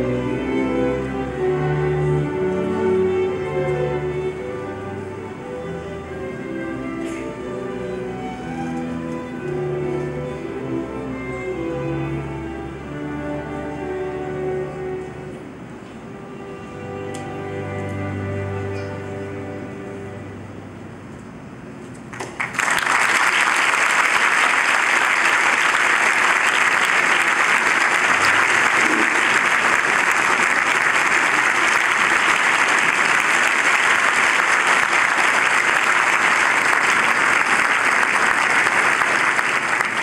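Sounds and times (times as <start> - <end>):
orchestra chord: 0.0 - 21.0
audience applause: 22.1 - 40.0.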